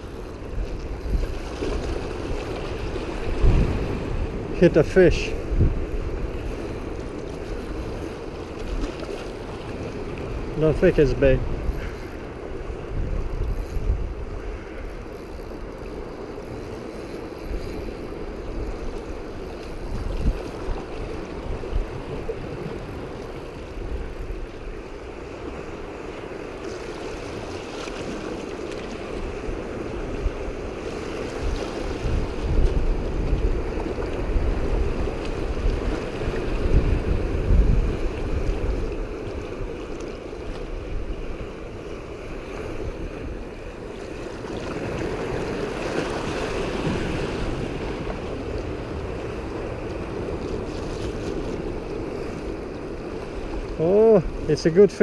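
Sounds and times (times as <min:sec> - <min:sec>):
wind buffeting microphone: 0:00.0 - 0:15.7, 0:17.5 - 0:24.8, 0:29.2 - 0:39.8
surf washing against rocks: 0:00.0 - 0:55.0.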